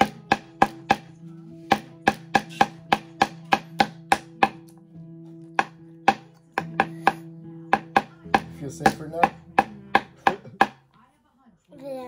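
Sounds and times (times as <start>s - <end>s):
small hammer tapping: 0.0s - 1.1s, 5.6s - 7.2s, 7.8s - 10.8s.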